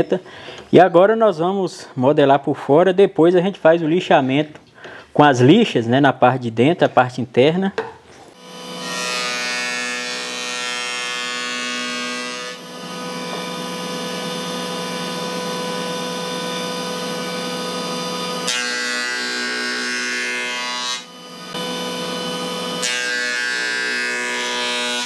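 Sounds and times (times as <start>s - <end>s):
cutterhead planing wood: 8.4s - 25.0s
jointer motor whine: 11.6s - 20.0s, 21.0s - 24.4s.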